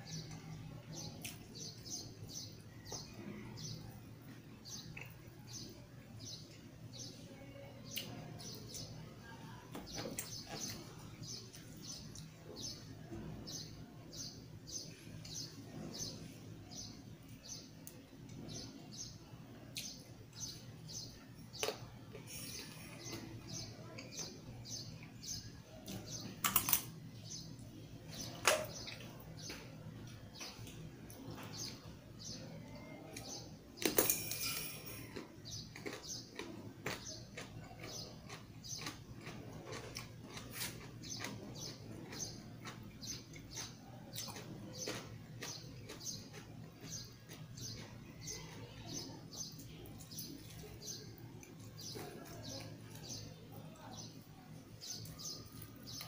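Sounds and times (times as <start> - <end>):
small birds chirping: 0.0 - 56.0
cucumber crunching: 33.8 - 48.0.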